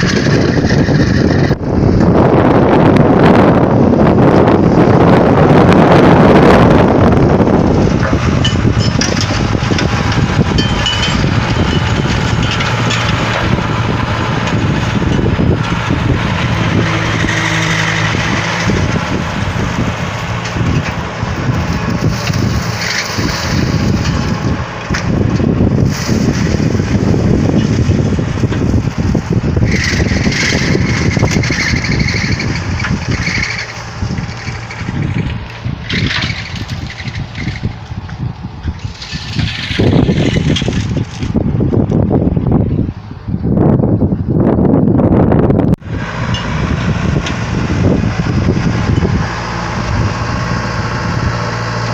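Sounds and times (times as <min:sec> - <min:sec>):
mulcher crunching and clattering: 0:00.0 - 0:02.2, 0:05.6 - 0:42.4
tractor engine running under load: 0:00.0 - 0:51.9.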